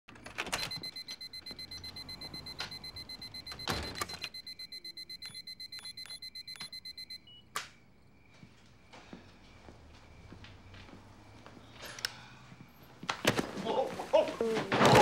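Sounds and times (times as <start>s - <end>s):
alarm keypad beeping rapidly: 0.5s - 7.4s
brief tone: 0.5s - 7.5s
keypad button presses with beeps: 0.5s - 7.5s.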